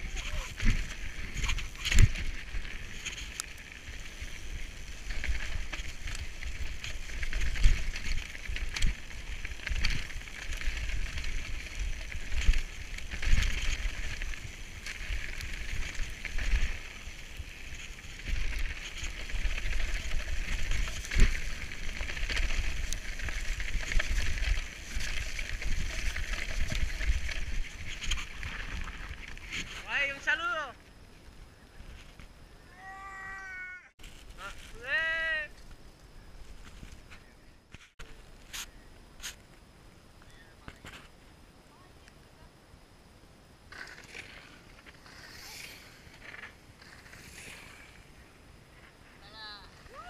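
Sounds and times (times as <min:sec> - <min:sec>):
bike knocking and rattling: 0:00.0 - 0:29.9, 0:43.7 - 0:48.0
wind rumbling on microphone: 0:00.0 - 0:30.2
tyres hissing on loose gravel: 0:00.0 - 0:31.7, 0:34.0 - 0:37.4, 0:43.7 - 0:50.0.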